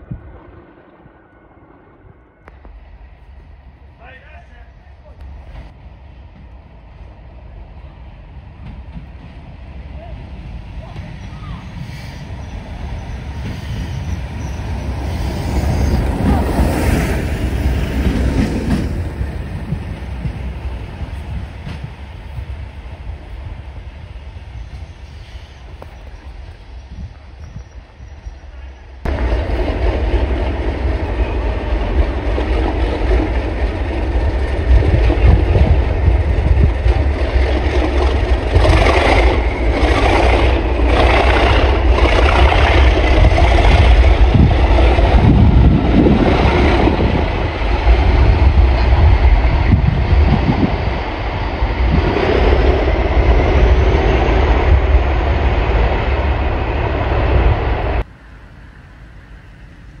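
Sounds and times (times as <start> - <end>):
diesel locomotive rumbling: 0.0 - 60.0
train wheels knocking: 8.6 - 9.5, 15.8 - 22.6.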